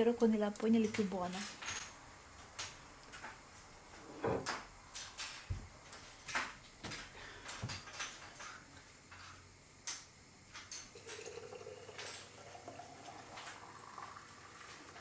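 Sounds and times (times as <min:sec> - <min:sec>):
juice pouring into glass bottle: 0:10.9 - 0:15.0
rising tone of bottle filling: 0:11.0 - 0:15.0.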